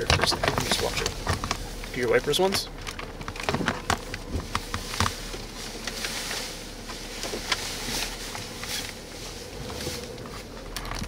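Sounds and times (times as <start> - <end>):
raindrops tapping on car: 0.0 - 6.0.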